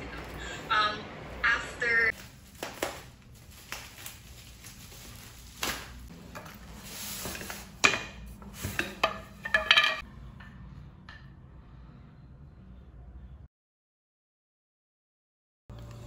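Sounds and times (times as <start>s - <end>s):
wooden parts knocking on tile floor: 7.3s - 11.3s.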